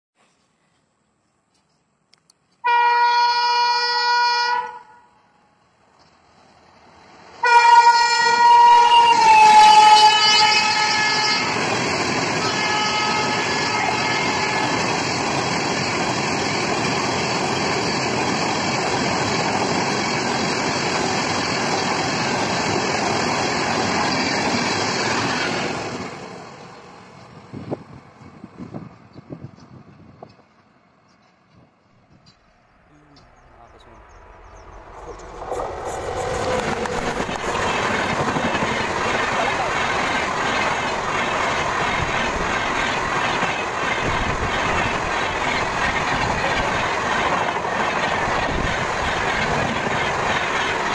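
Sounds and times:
locomotive horn blasts: 0:02.6 - 0:05.2, 0:07.4 - 0:11.6, 0:12.4 - 0:14.8
train coaches rushing and rattling: 0:07.1 - 0:28.4, 0:33.8 - 0:50.9.

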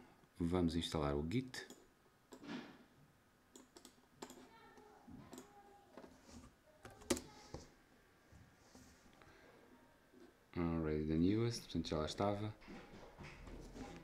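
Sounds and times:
keyboard and mouse clicks: 0:03.5 - 0:04.5, 0:06.8 - 0:07.3.

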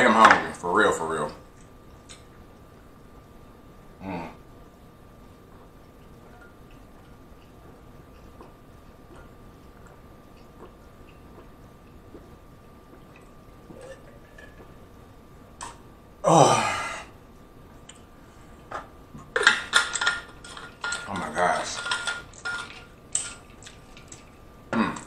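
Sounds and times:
man gulping water: 0:05.5 - 0:14.9
man exhaling ahh: 0:16.2 - 0:17.2.

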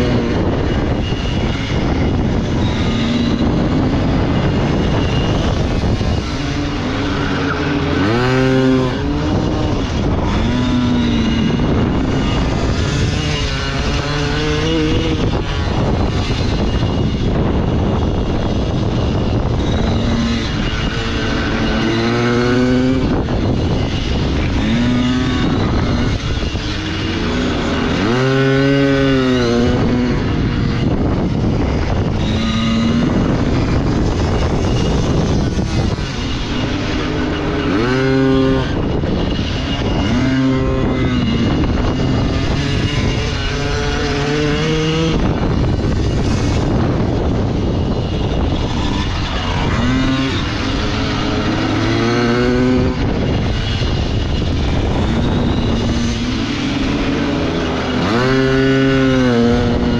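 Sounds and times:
pit bike engine accelerating: 0:00.0 - 0:59.9
wind rushing: 0:00.0 - 0:59.9.

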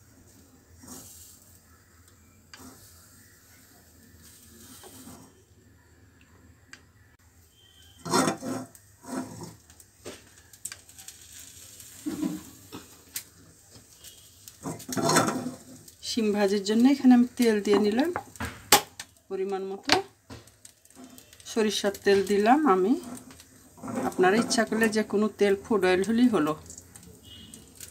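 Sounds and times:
metal pan scraping and knocking: 0:08.0 - 0:09.6, 0:12.0 - 0:12.9, 0:14.6 - 0:15.8, 0:22.0 - 0:25.0.

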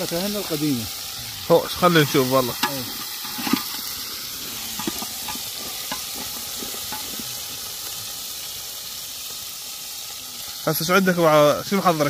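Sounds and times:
food frying sizzle: 0:00.0 - 0:12.0.

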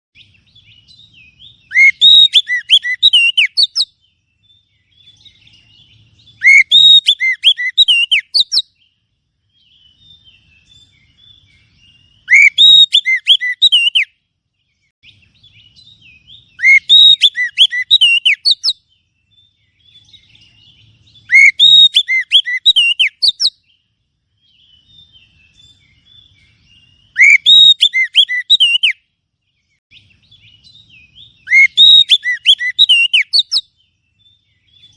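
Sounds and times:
bird whistled song: 0:00.2 - 0:34.9
faint bird chattering: 0:01.6 - 0:03.9, 0:06.4 - 0:08.7, 0:21.2 - 0:23.6, 0:31.3 - 0:33.7.

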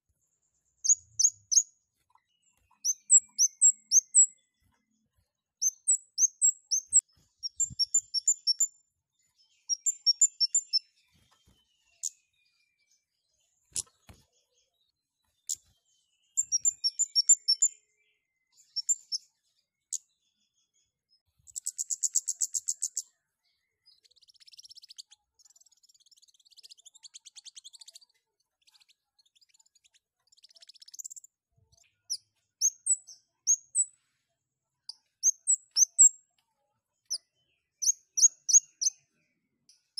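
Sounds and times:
soft bird twittering: 0:00.0 - 0:34.1, 0:34.8 - 0:36.3, 0:37.0 - 0:39.9
bird sharp high chirps: 0:00.8 - 0:04.7, 0:05.6 - 0:08.8, 0:09.4 - 0:13.0, 0:15.4 - 0:17.9, 0:18.6 - 0:19.3, 0:21.5 - 0:34.0, 0:34.9 - 0:36.2, 0:37.1 - 0:39.1.

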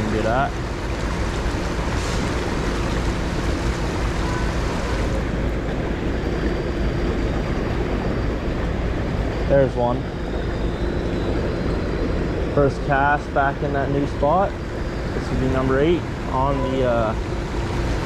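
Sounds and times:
water rushing over rocks: 0:00.0 - 0:10.2
faint steady hum: 0:00.0 - 0:18.0.

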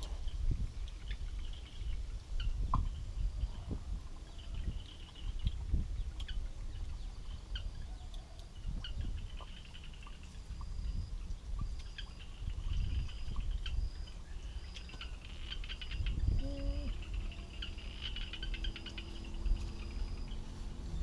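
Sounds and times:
wind rumbling on microphone: 0:00.0 - 0:21.0
high-pitched insect and bird chirps: 0:04.3 - 0:21.0.

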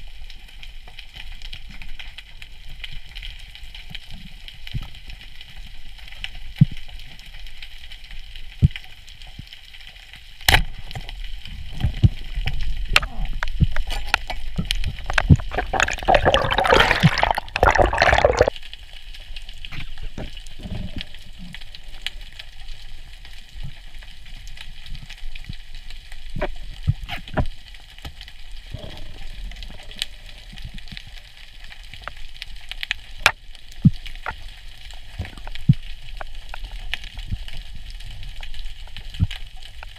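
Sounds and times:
bubbling gurgle: 0:11.5 - 0:18.6
muffled underwater rumble: 0:19.3 - 0:25.6.

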